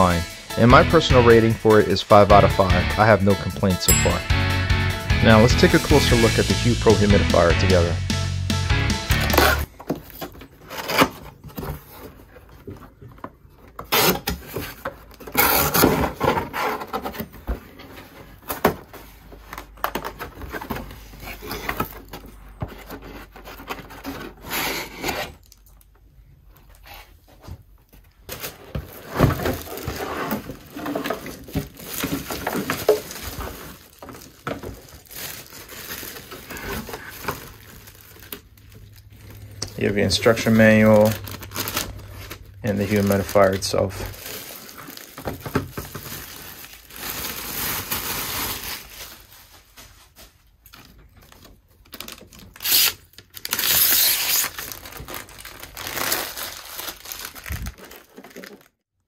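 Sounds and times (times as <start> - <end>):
cardboard scraping and rubbing: 13.7 - 19.3, 20.1 - 25.5, 28.5 - 34.2.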